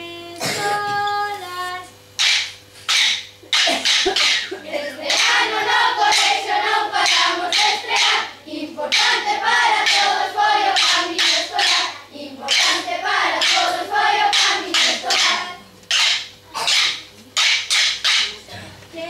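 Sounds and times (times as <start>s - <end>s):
wooden sticks clacking: 2.2s - 4.5s, 6.1s - 8.2s, 8.9s - 11.9s, 12.5s - 18.4s
children singing folk song: 4.2s - 16.8s.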